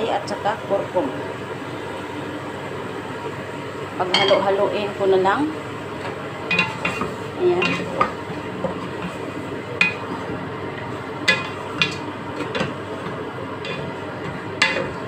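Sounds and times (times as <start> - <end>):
spatula stirring in metal pot: 6.5 - 15.0
spatula clacking against pot: 9.8 - 10.1, 11.2 - 15.0.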